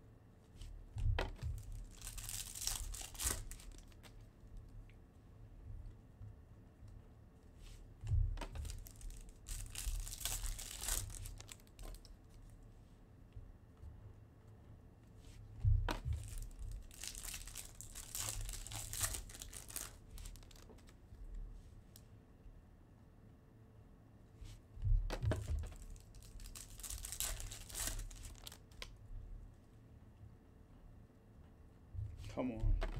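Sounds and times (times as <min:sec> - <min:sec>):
foil wrappers crinkling: 0:01.4 - 0:04.2, 0:08.4 - 0:12.1, 0:16.0 - 0:21.0, 0:25.3 - 0:28.9
dull thump: 0:08.0 - 0:08.5.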